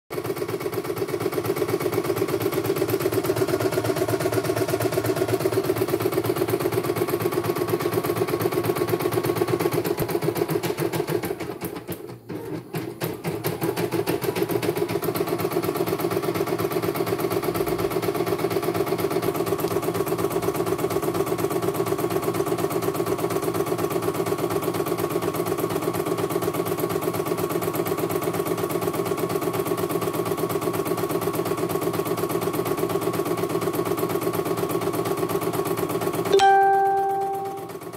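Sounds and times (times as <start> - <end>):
embroidery machine stitching: 0.2 - 21.1.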